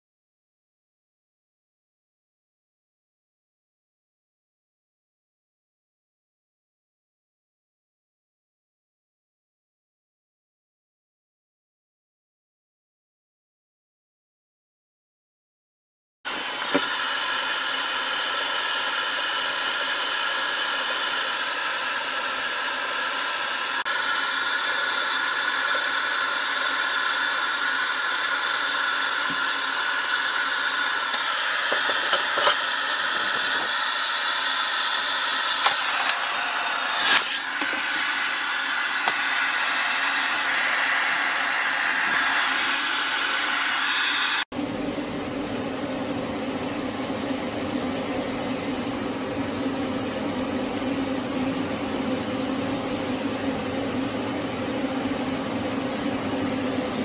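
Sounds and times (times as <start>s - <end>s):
pet hair dryer blowing: 16.3s - 44.6s.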